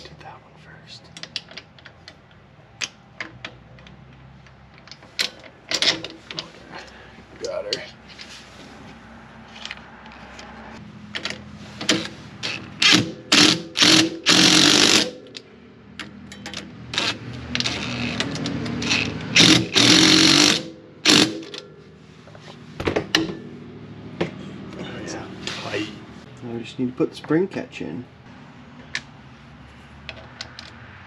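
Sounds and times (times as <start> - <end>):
impact driver hammering bolt: 19.4 - 21.6.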